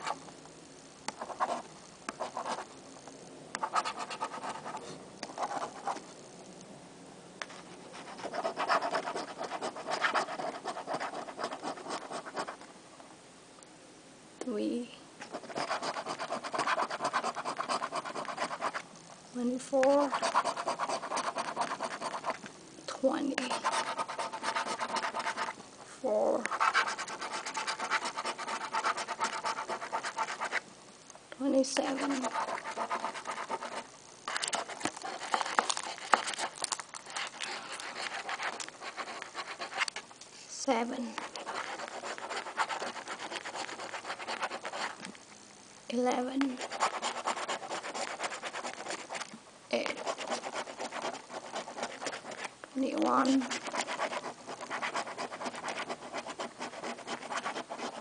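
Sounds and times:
coin scratching lottery ticket: 3.6 - 6.0, 8.0 - 12.6, 15.2 - 18.8, 19.9 - 22.4, 23.2 - 25.6, 26.5 - 30.6, 31.8 - 40.0, 41.2 - 45.0, 46.5 - 49.2, 49.8 - 58.0.

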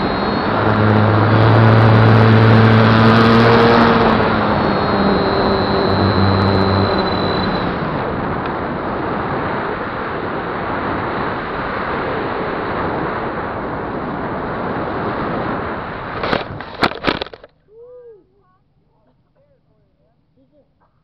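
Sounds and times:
electric motor whine: 0.0 - 17.4
propeller hum: 0.0 - 17.5
wind rushing over camera: 0.0 - 17.5.

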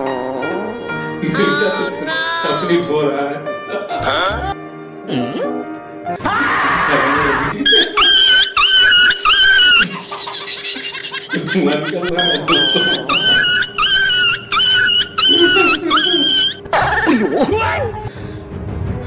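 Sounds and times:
high-pitched sped-up laughing: 7.6 - 17.2.

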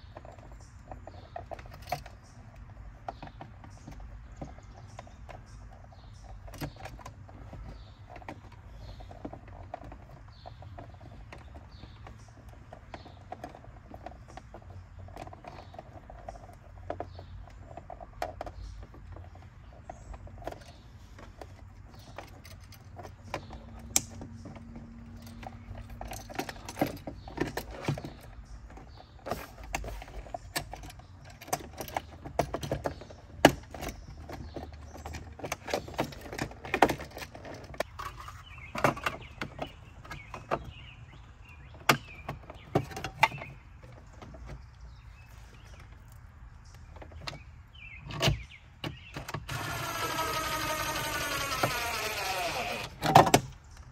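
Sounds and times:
screwdriver turning screws: 49.4 - 53.4.

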